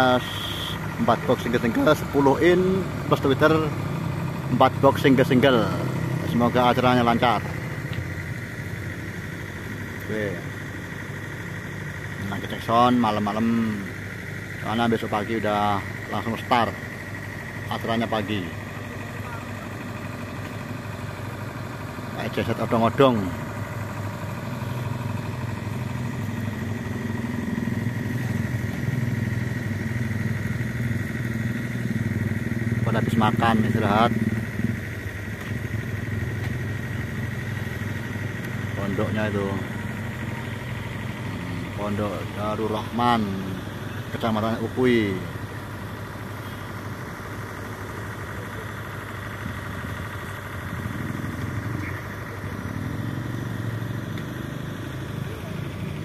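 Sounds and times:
faint high whine: 0.0s - 2.4s
small engine running: 0.0s - 56.0s.

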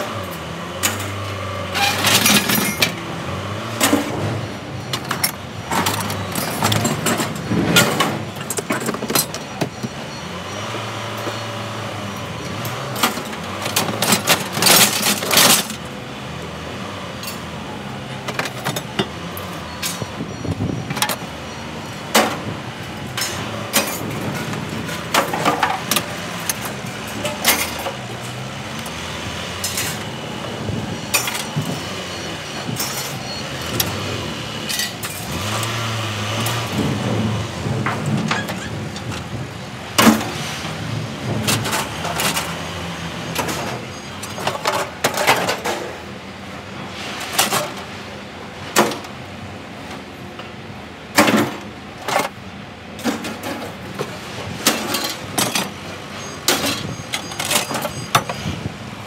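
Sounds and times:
scrap metal clanking: 0.8s - 3.0s, 23.1s - 28.4s, 53.0s - 55.8s.

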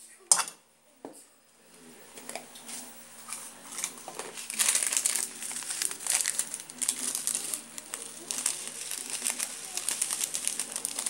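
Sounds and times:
plastic sachet crinkling: 3.3s - 11.0s.

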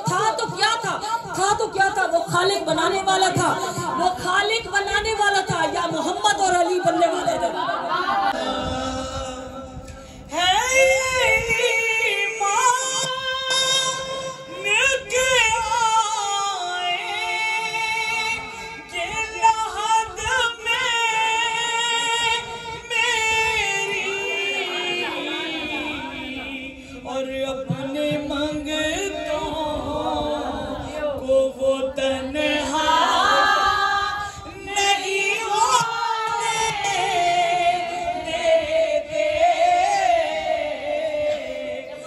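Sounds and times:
woman singing: 8.4s - 42.0s.

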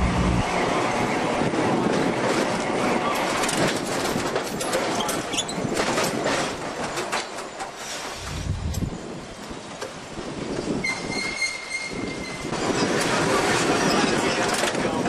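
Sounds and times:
tram wheels on rails: 0.0s - 15.0s
clicks and rattles over rails: 1.8s - 7.8s, 12.6s - 15.0s.

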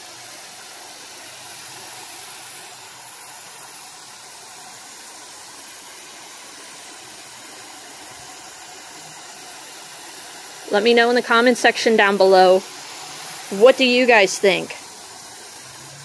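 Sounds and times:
hose nozzle spraying mist: 0.0s - 16.0s.

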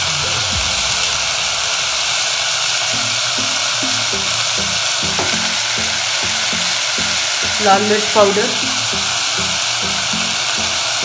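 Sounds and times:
background music: 0.0s - 11.0s
vegetables sizzling in oil: 0.0s - 11.0s.

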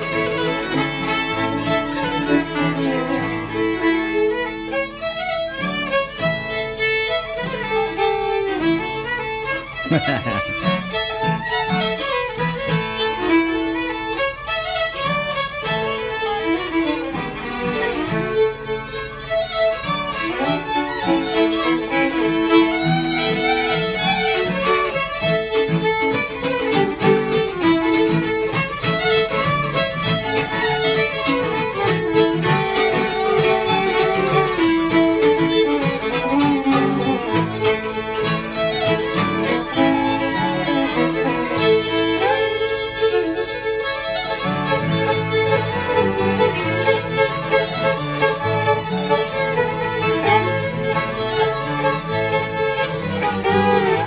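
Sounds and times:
acoustic guitar strumming: 0.0s - 54.0s
fiddles playing a tune: 0.0s - 54.0s.

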